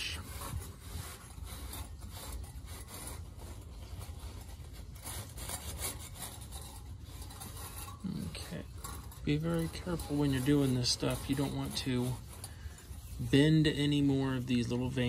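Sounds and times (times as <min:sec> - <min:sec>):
low steady hum: 0:00.0 - 0:15.0
paper towel scraping sheet metal: 0:00.0 - 0:15.0.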